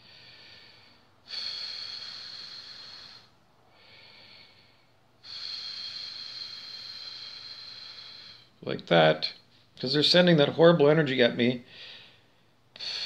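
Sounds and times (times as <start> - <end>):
man breathing through nose: 0.0 - 8.6, 11.7 - 13.0.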